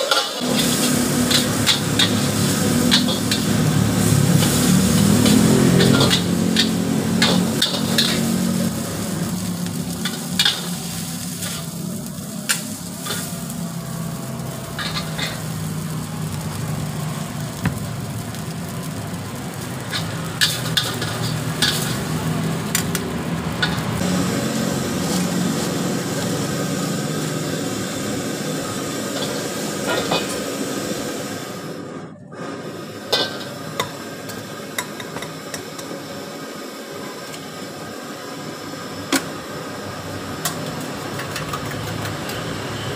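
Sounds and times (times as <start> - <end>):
metal ladle scraping a wok: 0.0 - 11.8, 14.7 - 15.6, 19.9 - 22.1
noodles sizzling in a wok: 0.0 - 42.9.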